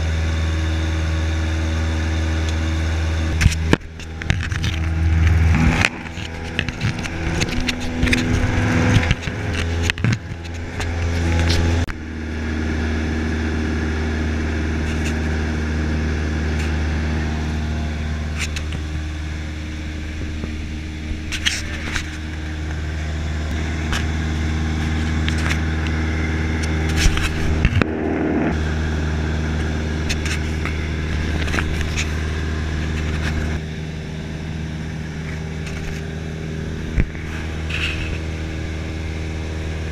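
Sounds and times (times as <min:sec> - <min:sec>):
airplane engine droning in cabin: 0:00.0 - 0:39.9
knocks and rustles: 0:03.3 - 0:11.9.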